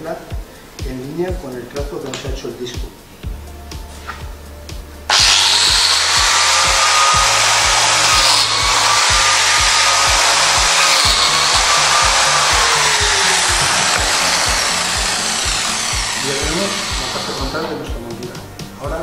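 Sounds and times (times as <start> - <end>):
biscuit joiner cutting wood: 5.1 - 18.0.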